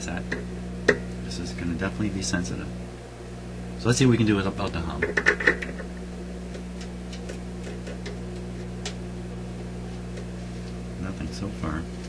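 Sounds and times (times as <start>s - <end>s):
amplifier mains hum: 0.0s - 12.0s
plug crackling clicks: 4.6s - 10.3s.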